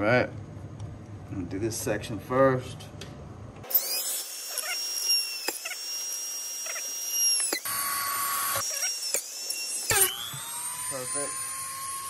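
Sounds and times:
power drill whining: 3.6 - 12.0.

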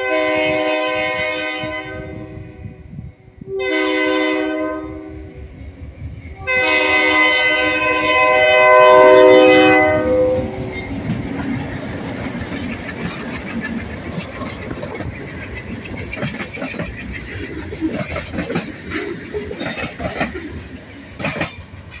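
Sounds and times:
train rumble: 0.0 - 22.0
train wheels clacking over rail joints: 10.4 - 22.0.

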